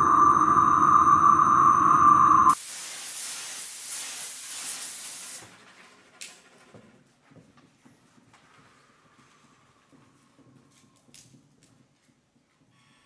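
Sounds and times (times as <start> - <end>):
hissing wash of noise: 0.0 - 3.4.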